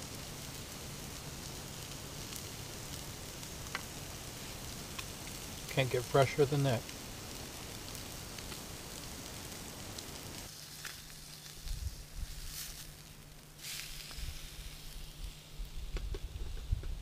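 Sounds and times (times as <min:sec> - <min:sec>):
fish sizzling in a frying pan: 0:00.0 - 0:16.6
short hissing spurts: 0:01.4 - 0:16.9
wind rumbling on microphone: 0:11.6 - 0:12.5, 0:14.1 - 0:17.0.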